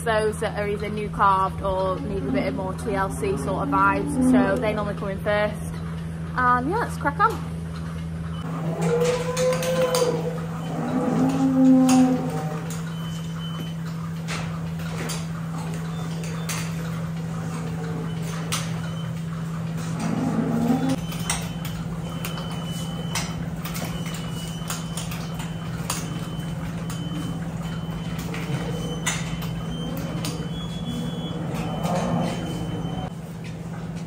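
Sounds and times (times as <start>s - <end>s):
milking machinery humming: 0.0s - 34.0s
cow lowing: 1.8s - 4.9s, 8.5s - 13.2s, 15.4s - 21.0s, 26.2s - 33.1s.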